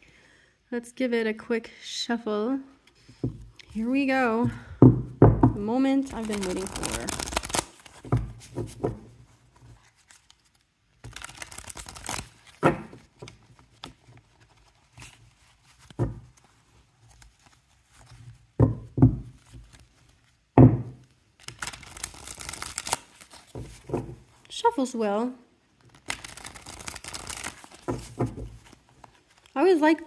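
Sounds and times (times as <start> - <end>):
cards shuffling flutter: 6.1 - 8.9, 9.6 - 18.2, 21.4 - 24.0, 25.9 - 29.6.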